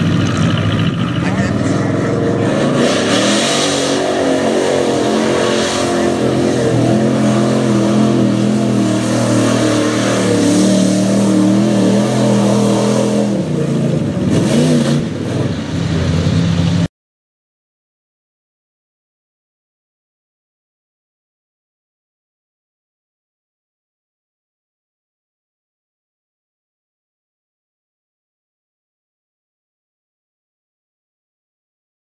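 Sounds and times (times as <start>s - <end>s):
truck engine revving hard: 0.0s - 16.9s.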